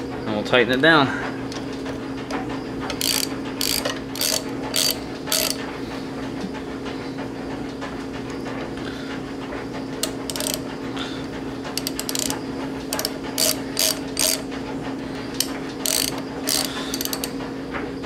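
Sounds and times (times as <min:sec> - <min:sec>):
socket ratchet clicking: 0:02.9 - 0:05.6, 0:10.0 - 0:10.7, 0:11.7 - 0:14.5, 0:15.4 - 0:17.4.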